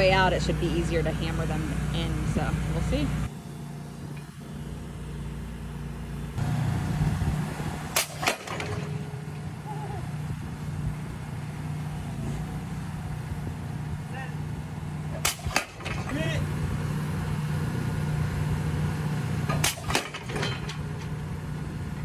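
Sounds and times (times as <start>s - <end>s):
boat engine running: 0.0s - 15.2s.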